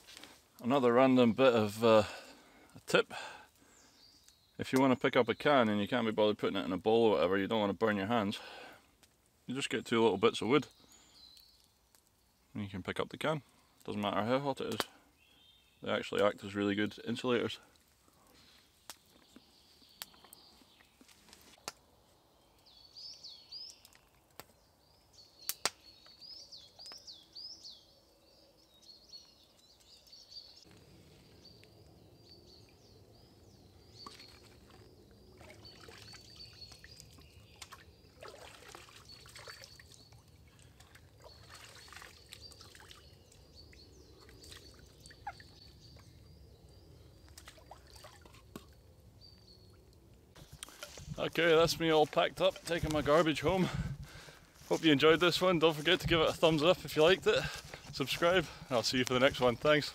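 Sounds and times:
small birds chirping: 0:00.0 - 0:59.9
trickling stream: 0:31.4 - 0:53.9
utensils splashing in water: 0:37.6 - 0:39.9.

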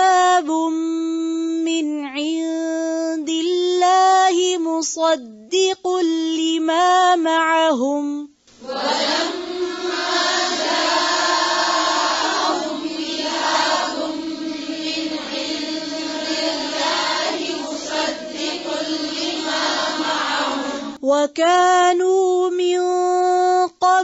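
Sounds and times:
woman reciting: 0:00.0 - 0:24.0
several voices chanting: 0:08.6 - 0:21.0.

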